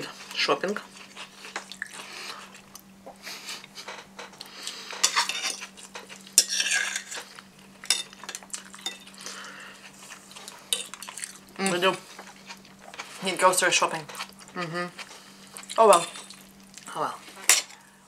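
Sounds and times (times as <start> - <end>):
faint steady hum: 0.0 - 18.0
cutlery clinking on glass plates: 5.0 - 7.2.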